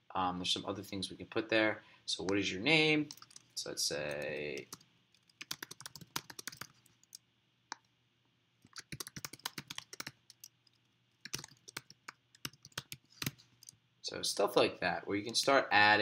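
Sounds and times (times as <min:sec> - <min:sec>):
typing on computer keyboard: 0:03.1 - 0:07.2, 0:08.6 - 0:13.8.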